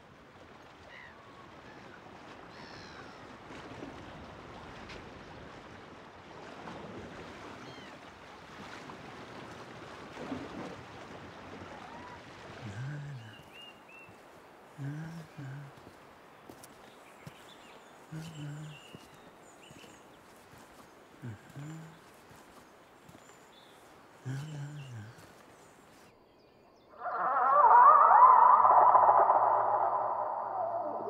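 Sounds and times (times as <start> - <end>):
sea waves washing: 0.0 - 26.1, 27.0 - 31.0
wind: 0.0 - 31.0
short high gliding calls: 27.0 - 31.0.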